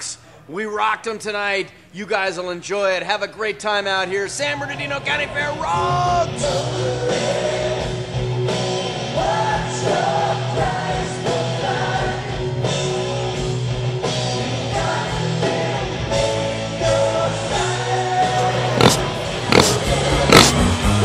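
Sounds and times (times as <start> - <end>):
rock music with singer: 4.8 - 21.0.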